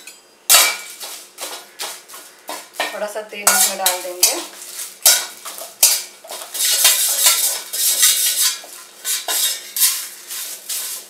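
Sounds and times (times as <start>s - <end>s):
metal spatula scraping a pan: 2.8s - 11.0s.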